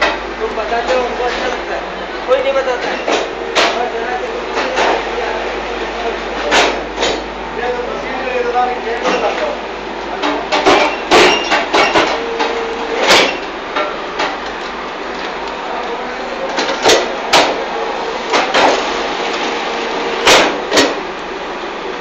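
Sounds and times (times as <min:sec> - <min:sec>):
machine humming: 0:00.0 - 0:22.0
sharp metallic knocks: 0:10.2 - 0:14.4, 0:20.2 - 0:21.0.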